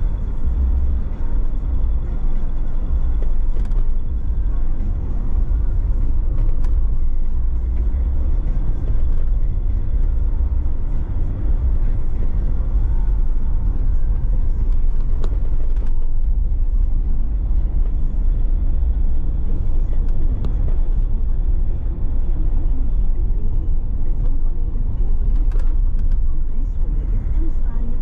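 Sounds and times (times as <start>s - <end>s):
car engine and road noise: 0.0s - 28.0s.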